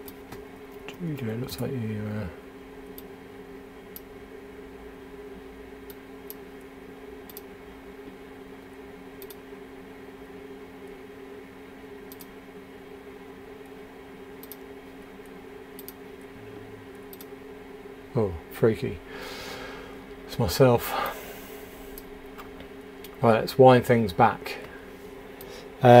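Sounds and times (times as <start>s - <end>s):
low electrical hum: 0.0s - 26.0s
computer clicks: 7.2s - 7.5s, 9.2s - 9.4s, 12.1s - 12.4s, 14.4s - 14.7s, 15.8s - 16.0s, 17.0s - 17.3s.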